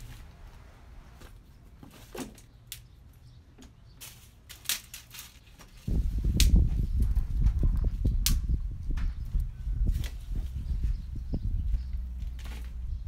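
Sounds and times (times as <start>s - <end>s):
hands working soil and bottles: 0.0s - 8.2s, 11.7s - 13.0s
low rumbling rapid thuds: 5.9s - 13.0s.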